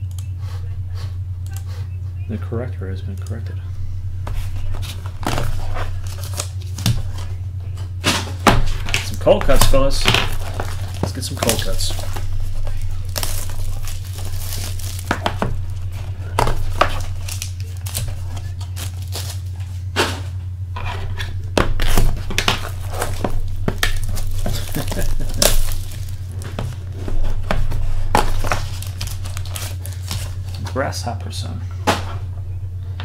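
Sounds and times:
steady low hum: 0.0 - 33.0
foil wrappers crinkling and ripping: 4.3 - 7.4, 8.2 - 20.0, 21.4 - 31.4.

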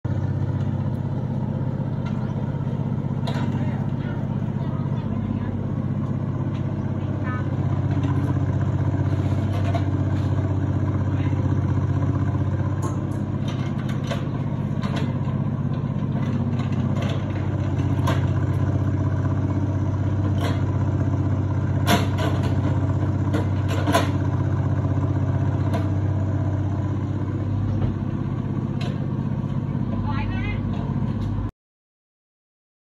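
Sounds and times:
diesel engine running under load: 0.0 - 31.5
excavator bucket clanking: 3.0 - 4.6, 12.6 - 18.8, 21.6 - 24.6.

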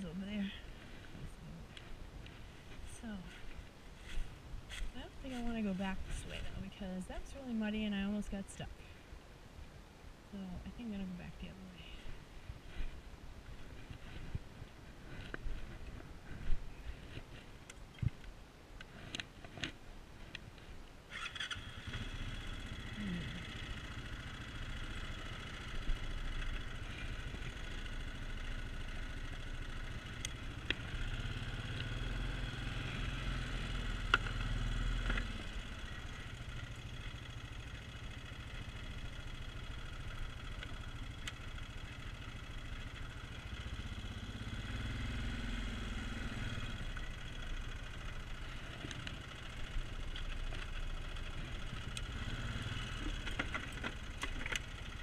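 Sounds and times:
quad bike engine running: 21.1 - 55.0.

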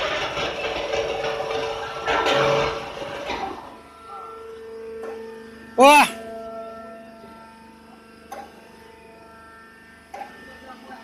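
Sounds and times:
steady machine hum: 0.0 - 11.0
person calling out: 5.8 - 6.2.

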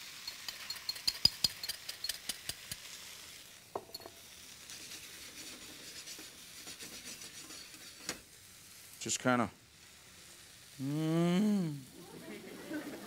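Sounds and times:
eggs sizzling in a pan: 0.0 - 13.0
fork clicking against pan: 0.1 - 3.0.

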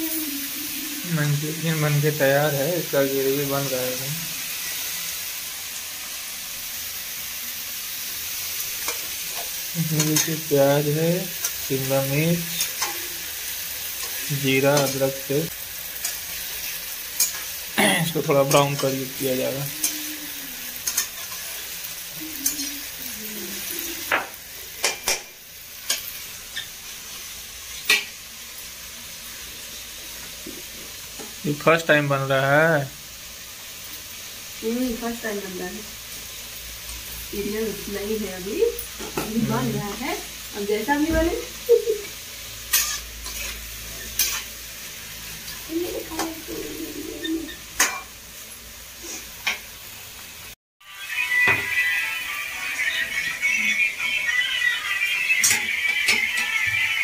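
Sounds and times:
onions sizzling in oil: 0.0 - 57.0
spatula clinking and scraping pan: 8.8 - 13.2, 13.9 - 15.3, 16.0 - 20.1, 20.8 - 21.8, 24.0 - 26.7, 27.8 - 28.2, 42.0 - 44.6, 47.2 - 48.2.

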